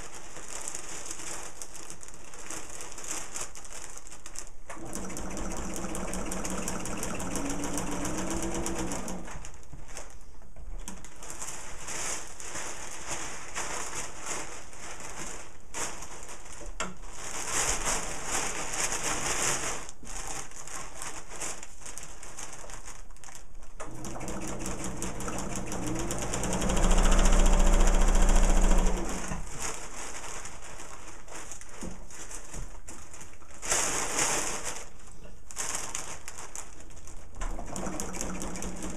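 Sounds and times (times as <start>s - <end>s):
sewing machine stitching: 4.7s - 9.5s, 23.8s - 29.6s, 37.4s - 38.9s.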